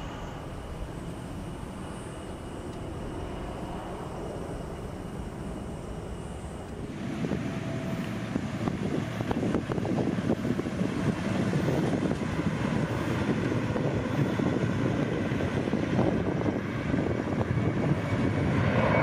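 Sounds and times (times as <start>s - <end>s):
jet aircraft rumbling: 0.0s - 19.0s.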